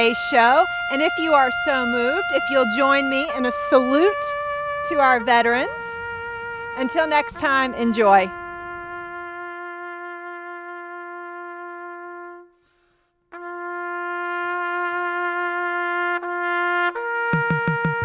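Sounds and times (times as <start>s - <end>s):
trumpet holding a long note: 0.0s - 12.7s, 13.3s - 18.0s
drum hits: 17.3s - 18.0s.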